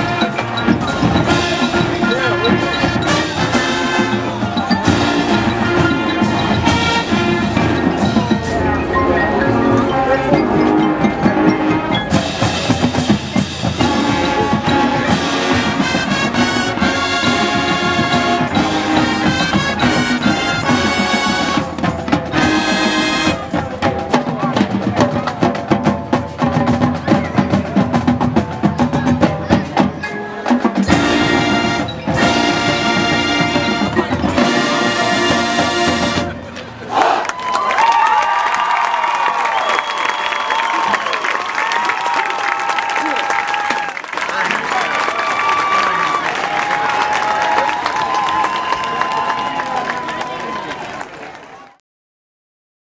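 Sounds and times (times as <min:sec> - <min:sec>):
brass: 0:00.0 - 0:25.1, 0:29.7 - 0:37.3
marimba and xylophone: 0:00.0 - 0:36.8
marching drums: 0:00.0 - 0:37.1.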